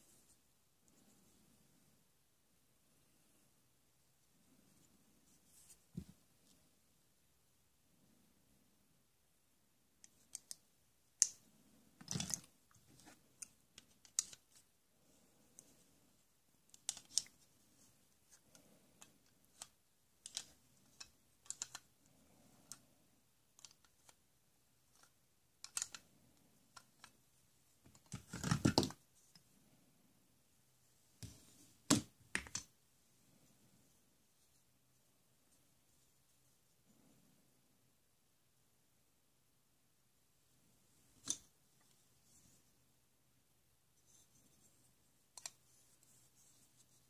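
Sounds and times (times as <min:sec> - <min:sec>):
plastic toy clatter: 0:12.0 - 0:12.5, 0:19.5 - 0:21.9, 0:24.9 - 0:26.0
plastic toy pieces clicking: 0:12.1 - 0:12.5, 0:16.7 - 0:17.3, 0:19.0 - 0:21.9, 0:23.6 - 0:24.2, 0:24.9 - 0:26.0.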